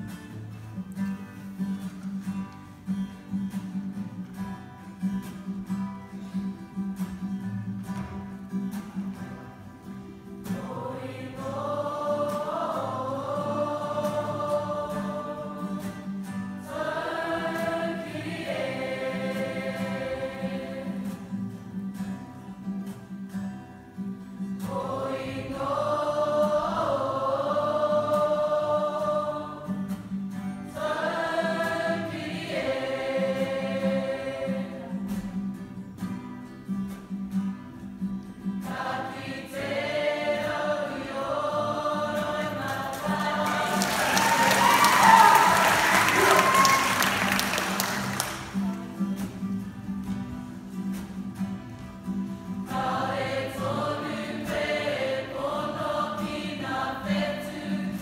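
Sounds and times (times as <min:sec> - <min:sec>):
acoustic guitars strumming: 0:00.0 - 0:58.0
choir singing: 0:10.3 - 0:21.6, 0:24.5 - 0:35.4, 0:38.6 - 0:49.3, 0:52.4 - 0:58.0.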